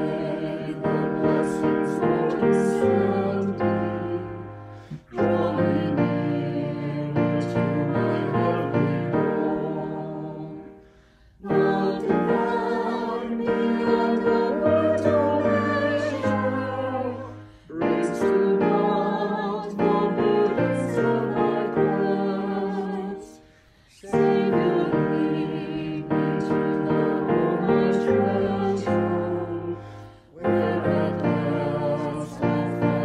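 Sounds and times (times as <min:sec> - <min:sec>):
choir singing a hymn: 0:00.0 - 0:33.0
piano accompaniment: 0:00.0 - 0:33.0
singers breathing: 0:04.5 - 0:05.2, 0:10.7 - 0:11.4, 0:17.3 - 0:17.8, 0:23.4 - 0:24.1, 0:29.7 - 0:30.4.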